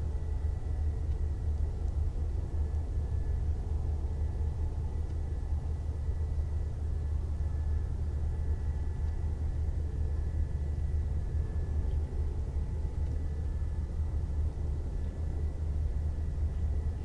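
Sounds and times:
low machinery rumble: 0.0 - 17.0.

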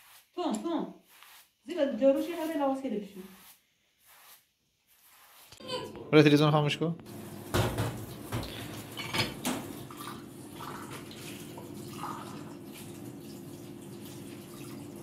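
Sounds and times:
tap running into steel sink: 7.5 - 9.7
crockery clinking: 8.4 - 9.5.

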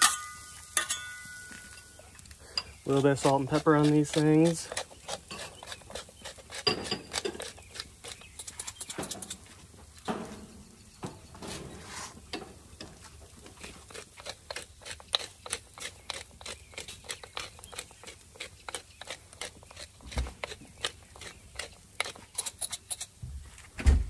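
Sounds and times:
spice grinder crunching: 2.9 - 9.5, 13.5 - 23.2.

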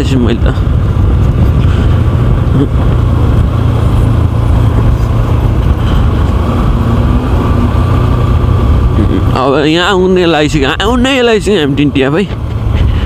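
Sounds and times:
wind on microphone: 0.0 - 9.4
motorcycle engine running: 0.0 - 13.0.

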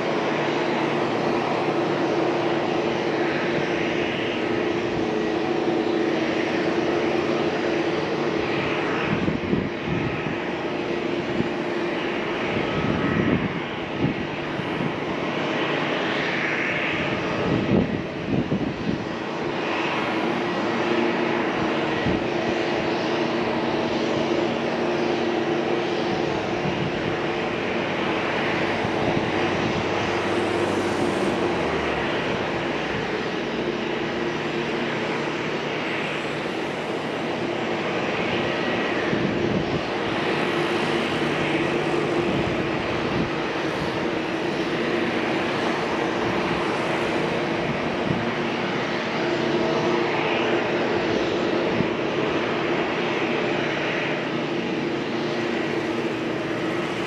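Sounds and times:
airliner engines humming: 0.0 - 57.0.

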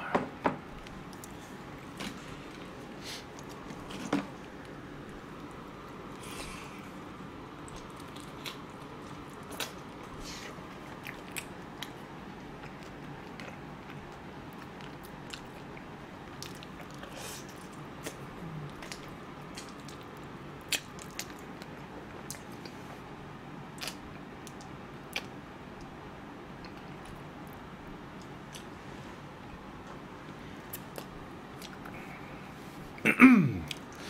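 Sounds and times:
room noise: 0.0 - 34.0
chewing crunchy chicken: 1.0 - 22.8, 23.7 - 25.9.

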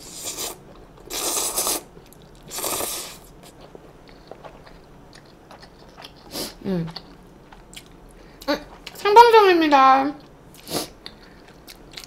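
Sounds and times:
person slurping noodles: 0.0 - 1.9, 2.5 - 3.3
soft wet chewing: 0.4 - 9.0, 10.2 - 12.0.

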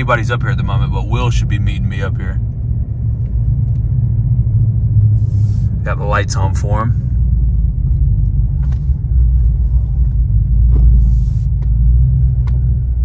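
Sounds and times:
truck rumble from inside cab: 0.0 - 13.0.

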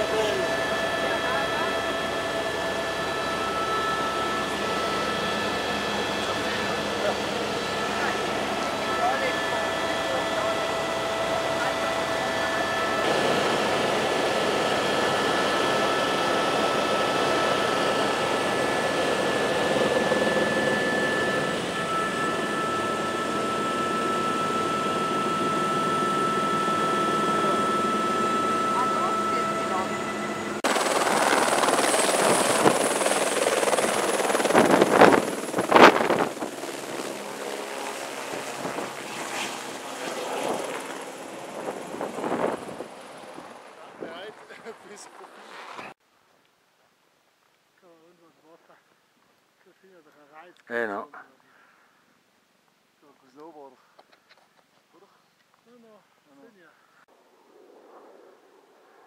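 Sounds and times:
helicopter engine and rotor drone: 0.0 - 46.0
high whine: 0.0 - 46.0.

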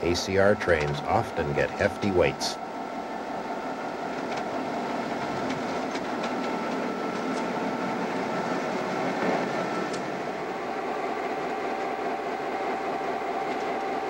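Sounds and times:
wheels clicking over rails: 0.0 - 2.5, 4.1 - 10.2
diesel locomotives moving: 0.0 - 14.0.

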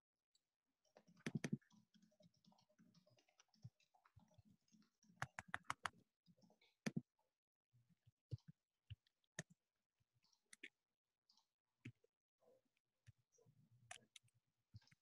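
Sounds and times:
faint clicks and taps: 0.3 - 7.2, 10.2 - 15.0.

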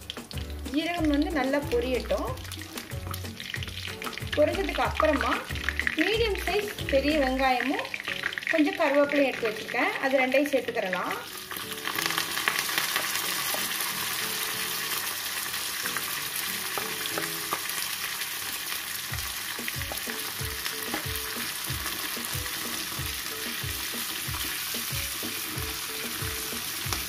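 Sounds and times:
onions sizzling in hot oil: 0.0 - 27.0.

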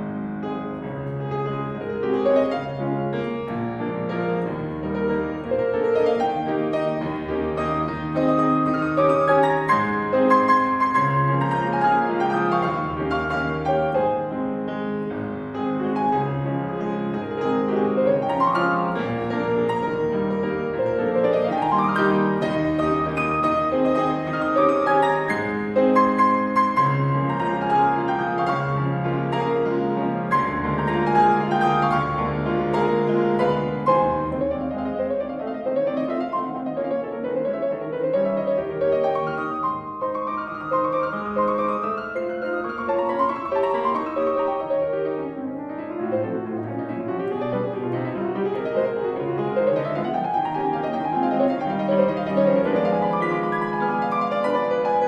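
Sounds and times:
solo grand piano piece: 0.0 - 55.0.

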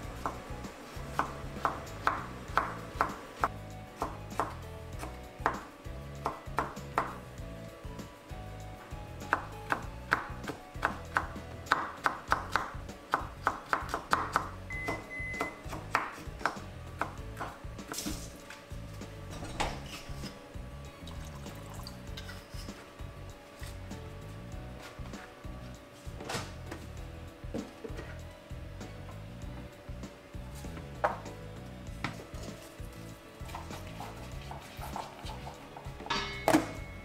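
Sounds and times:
soft background music: 0.0 - 37.0
knife chopping on wooden board: 0.2 - 7.2, 9.2 - 18.2, 33.4 - 36.8.

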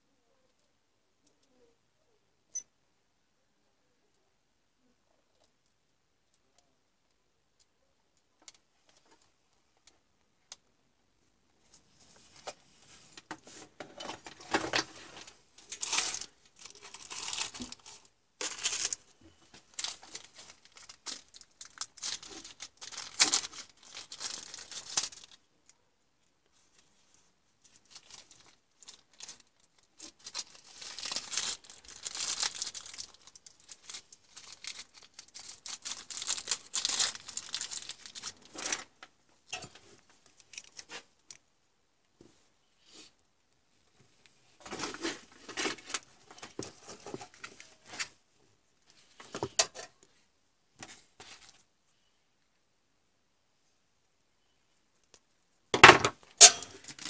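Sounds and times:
plastic rustling and crinkling: 11.6 - 25.8, 26.5 - 41.5, 43.9 - 51.7, 55.9 - 57.0.

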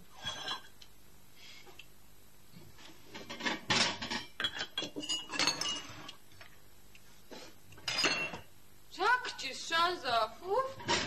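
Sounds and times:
crockery and cutlery clinking: 3.3 - 6.2, 7.8 - 8.5.

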